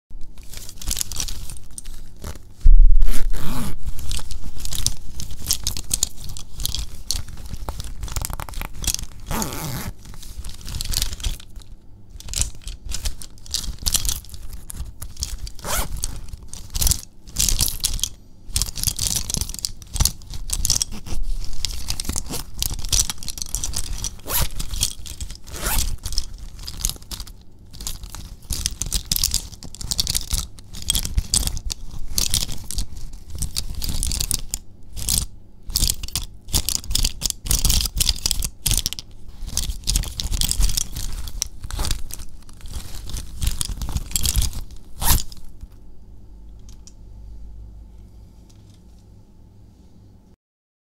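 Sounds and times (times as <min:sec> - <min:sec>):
zipper pulled open and shut: 0:02.2 - 0:03.9, 0:09.2 - 0:10.0, 0:15.6 - 0:16.1, 0:24.2 - 0:24.6, 0:25.4 - 0:26.0, 0:45.0 - 0:45.4.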